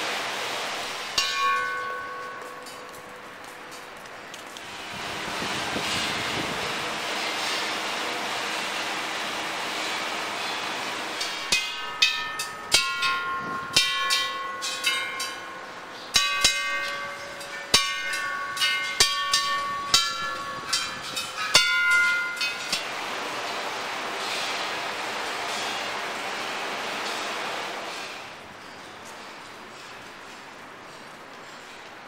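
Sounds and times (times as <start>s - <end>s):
metal temple bells struck: 1.1s - 3.3s, 11.2s - 22.9s.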